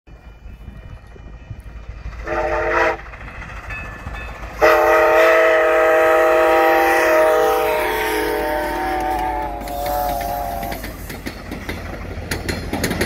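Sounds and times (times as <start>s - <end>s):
steam locomotive whistle: 2.2s - 3.1s, 4.5s - 11.2s.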